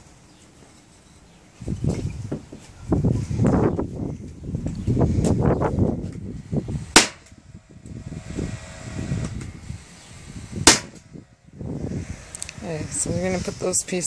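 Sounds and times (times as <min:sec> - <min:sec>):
muffled rumble: 0:01.7 - 0:14.0
nail gun firing: 0:06.9 - 0:07.4, 0:10.6 - 0:11.1.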